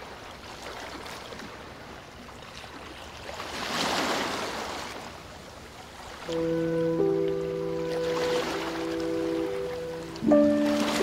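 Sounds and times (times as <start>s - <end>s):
ocean surf washing up beach: 5.8s - 11.0s.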